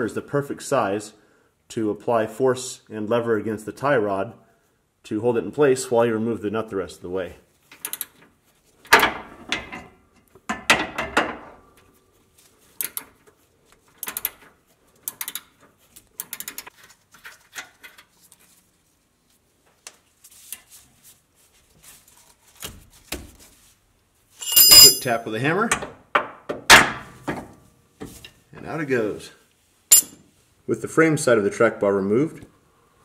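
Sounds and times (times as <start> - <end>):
ratchet wrench clicks and knocks: 15.1 - 15.5
metal tools clanking: 24.4 - 25.2, 29.9 - 30.2.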